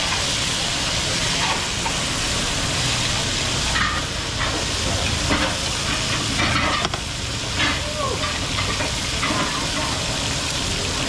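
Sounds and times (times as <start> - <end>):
beef sizzling in skillets: 0.0 - 11.0.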